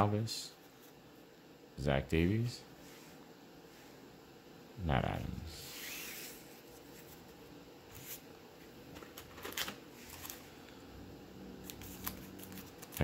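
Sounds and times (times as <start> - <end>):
cards rustling and tapping: 8.9 - 10.4, 11.6 - 13.0.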